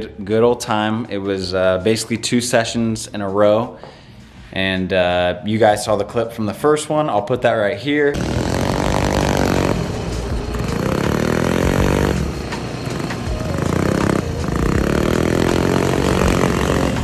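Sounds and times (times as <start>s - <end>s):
go-kart engine revving: 8.2s - 17.0s.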